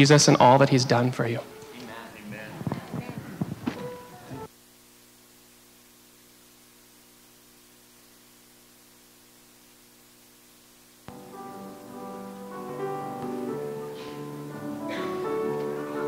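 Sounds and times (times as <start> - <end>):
piano music: 0.0 - 2.7, 3.6 - 4.5, 11.1 - 16.0
electrical mains hum: 0.0 - 16.0
faint hiss: 0.0 - 16.0.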